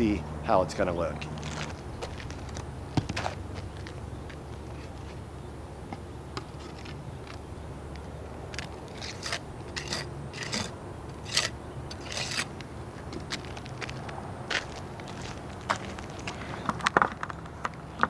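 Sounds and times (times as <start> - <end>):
trowel scraping: 8.9 - 12.6.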